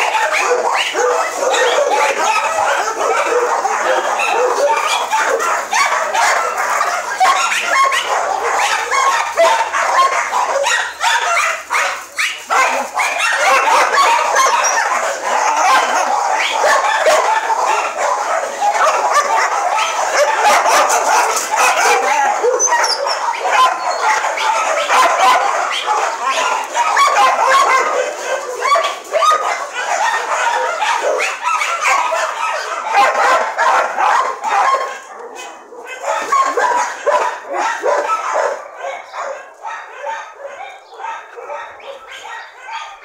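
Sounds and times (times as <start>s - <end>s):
dogs barking and yipping: 0.0s - 43.0s.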